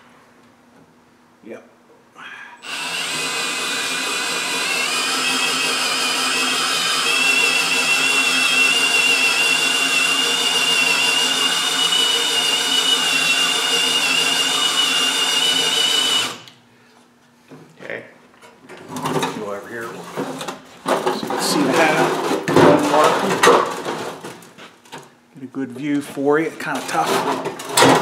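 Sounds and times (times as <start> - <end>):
cordless drill whine: 2.6 - 16.6.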